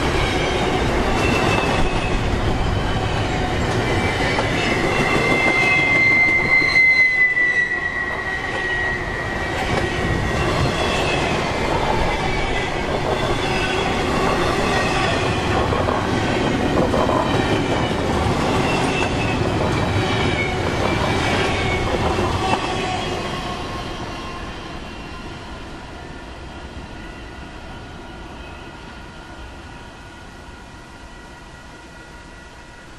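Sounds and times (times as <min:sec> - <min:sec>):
steel wheels squealing: 0:00.0 - 0:25.3
freight train rolling past: 0:00.0 - 0:32.9.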